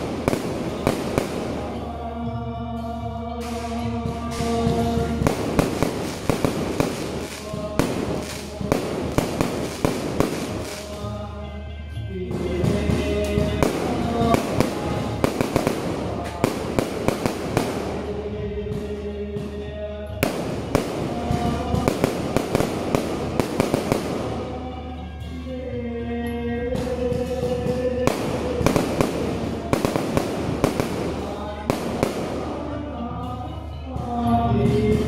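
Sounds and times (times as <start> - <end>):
fireworks bangs and crackles: 0.0 - 2.0, 3.4 - 11.1, 12.3 - 19.0, 20.2 - 24.7, 27.4 - 32.9
music playing: 0.0 - 35.0.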